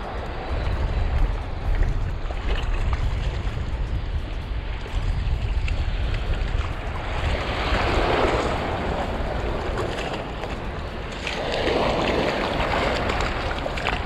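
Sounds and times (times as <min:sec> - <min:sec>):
small waves washing ashore: 0:00.0 - 0:14.0
wind buffeting microphone: 0:00.0 - 0:14.0.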